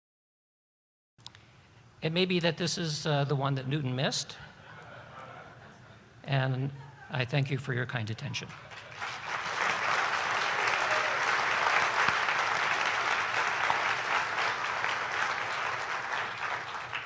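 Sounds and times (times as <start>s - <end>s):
audience applauding: 8.5s - 17.0s.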